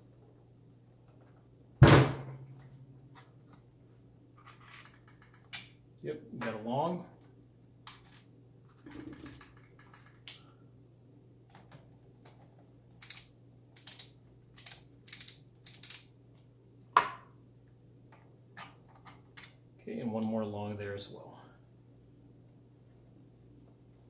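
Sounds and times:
metallic clicks of screws: 0:12.9 - 0:16.1.

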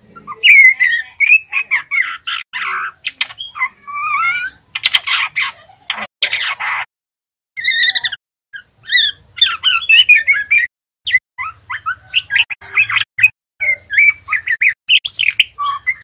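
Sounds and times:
bird twittering song: 0:00.0 - 0:06.9, 0:07.6 - 0:16.0.

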